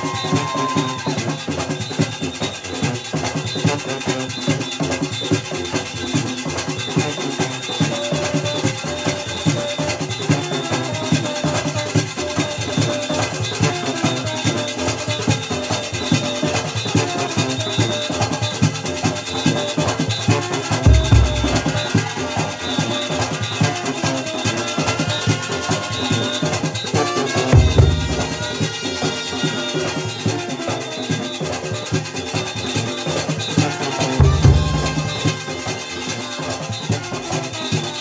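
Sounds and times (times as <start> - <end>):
hand drums beating: 0.0 - 36.2
pitched instrument lines: 20.5 - 22.9, 26.8 - 31.2, 33.7 - 36.0
metal barrel drum beating: 20.7 - 22.3, 27.4 - 30.0, 34.0 - 35.8.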